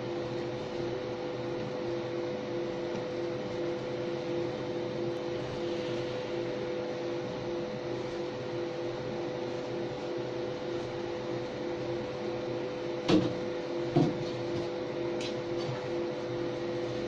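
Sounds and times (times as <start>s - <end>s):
laser machine humming: 0.0s - 17.0s.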